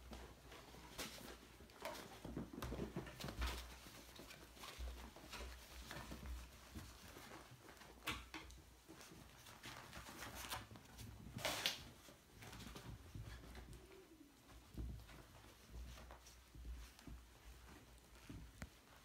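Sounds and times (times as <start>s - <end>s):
puppy paws scuffling: 0.0s - 19.0s.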